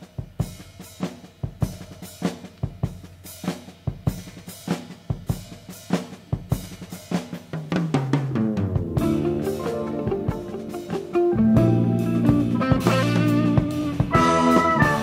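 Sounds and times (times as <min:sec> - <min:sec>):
drum kit groove: 0:00.0 - 0:15.0
bass guitar notes: 0:08.4 - 0:15.0.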